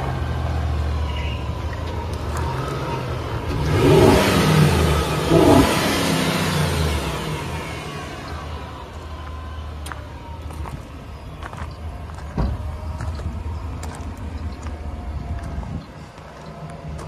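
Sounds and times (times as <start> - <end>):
truck engine idling: 0.0 - 17.0
footsteps on gravel: 9.2 - 17.0
thump: 12.3 - 12.7.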